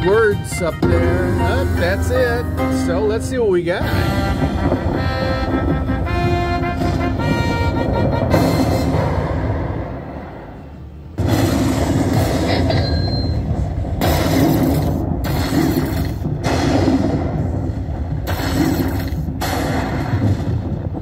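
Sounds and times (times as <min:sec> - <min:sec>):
steady low rumble: 0:00.0 - 0:21.0
slot machine thunder crashes: 0:00.8 - 0:09.8, 0:11.2 - 0:17.4.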